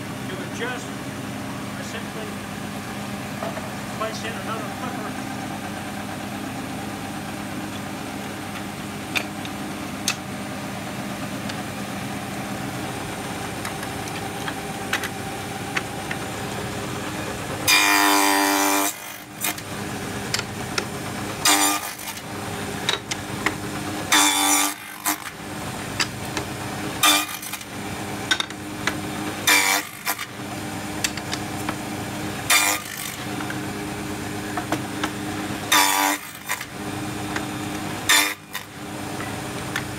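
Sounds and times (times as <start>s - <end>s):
table saw running: 0.0s - 39.9s
saw blade rasping through wood: 17.7s - 19.6s, 21.4s - 22.2s, 24.1s - 25.4s, 27.0s - 27.7s, 29.4s - 30.4s, 32.4s - 33.3s, 35.7s - 36.7s, 38.0s - 38.7s.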